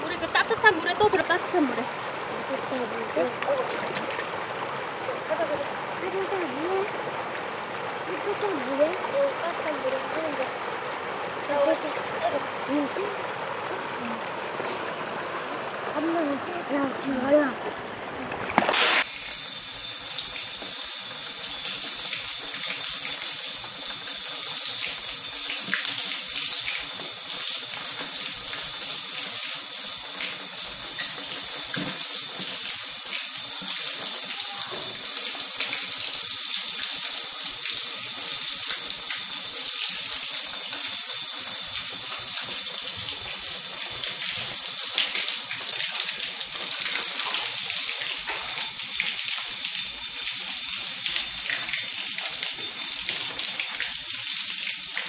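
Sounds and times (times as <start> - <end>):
water pouring into a bathtub: 18.4 - 55.0.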